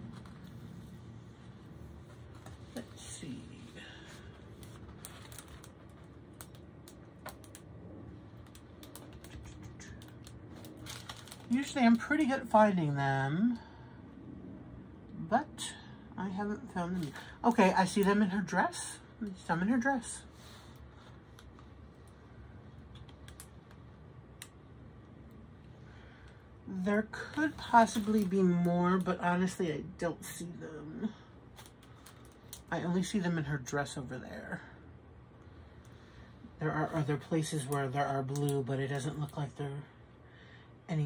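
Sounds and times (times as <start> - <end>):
soft rustling of plastic: 0.0 - 12.6, 16.7 - 29.6, 31.0 - 33.5
low room hum: 0.0 - 41.0.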